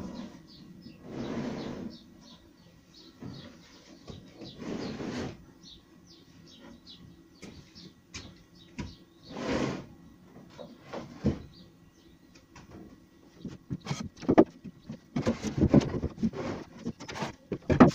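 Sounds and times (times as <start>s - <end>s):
plywood scraping: 3.3s - 5.5s, 9.2s - 9.9s, 10.5s - 11.6s, 13.4s - 17.9s.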